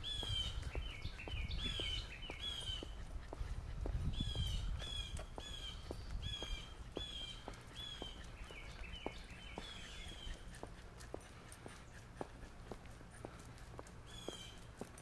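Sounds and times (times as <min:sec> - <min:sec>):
songbird calling: 0:00.0 - 0:03.0, 0:04.1 - 0:10.7, 0:14.1 - 0:14.7.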